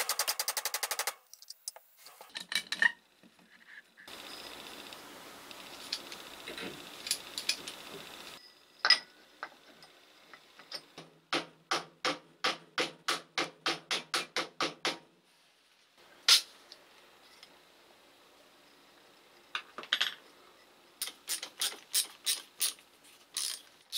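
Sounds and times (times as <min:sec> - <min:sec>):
steady hiss: 0:03.9 - 0:10.8, 0:15.2 - 0:23.9
hammer tapping metal tube: 0:11.3 - 0:15.0.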